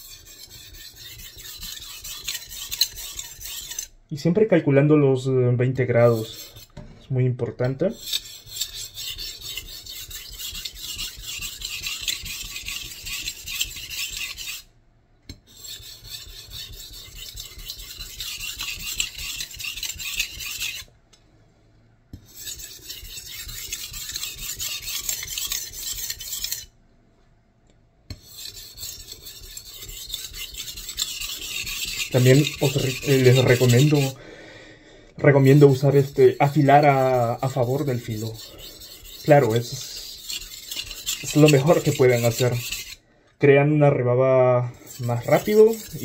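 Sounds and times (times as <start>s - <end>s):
knife blade rasping on whetstone: 0.0s - 4.0s, 6.1s - 6.8s, 8.0s - 14.7s, 15.5s - 20.9s, 22.2s - 26.7s, 28.1s - 34.2s, 35.4s - 43.0s, 44.8s - 46.0s.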